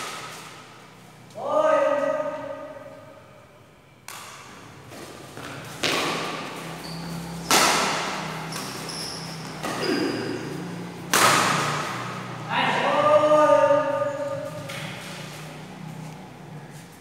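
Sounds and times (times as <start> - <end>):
rackets hitting shuttlecock: 0.0 - 1.0, 4.0 - 12.4, 14.0 - 15.8.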